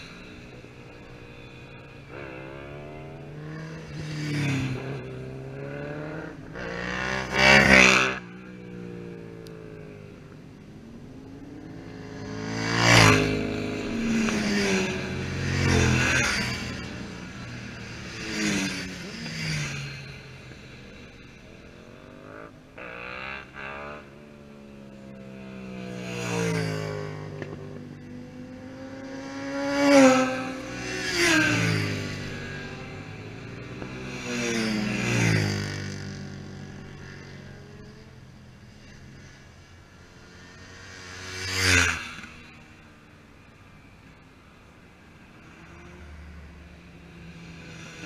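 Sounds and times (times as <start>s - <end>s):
motorcycle passing at speed: 0.0s - 48.0s
motorcycles approaching: 0.0s - 48.0s
car passing by: 11.9s - 17.4s.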